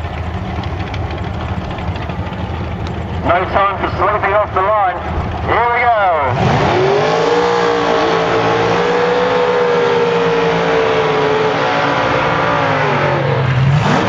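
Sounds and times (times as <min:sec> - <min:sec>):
engines revving high: 0:02.8 - 0:14.0.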